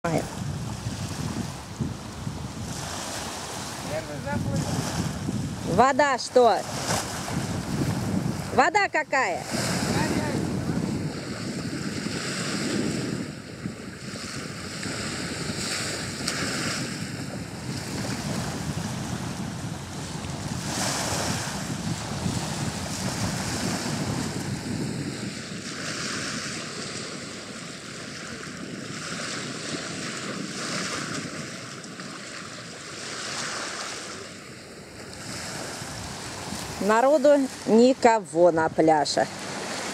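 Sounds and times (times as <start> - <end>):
waves washing on beach: 0.0 - 39.9
wind buffeting microphone: 0.0 - 39.9.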